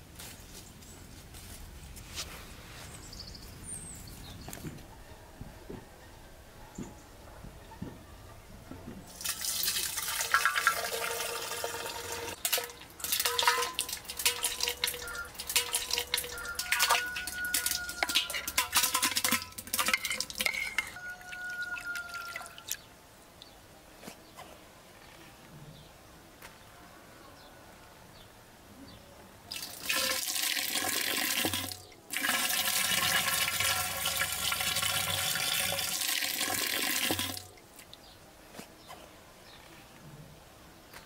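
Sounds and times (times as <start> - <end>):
liquid pouring into container: 9.1 - 20.9, 29.5 - 37.5.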